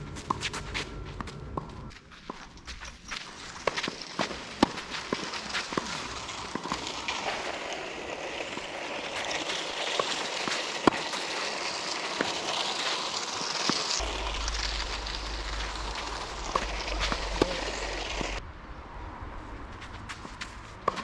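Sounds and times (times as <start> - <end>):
outdoor hiss: 3.2 - 18.4
low rumble: 14.0 - 19.9.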